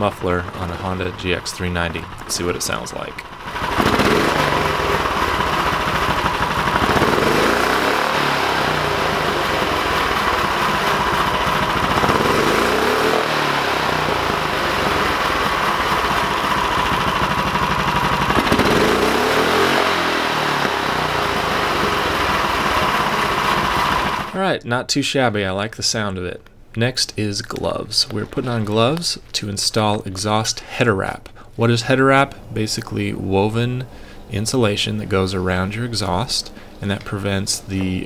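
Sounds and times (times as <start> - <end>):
engine idling and revving: 0.0 - 24.4.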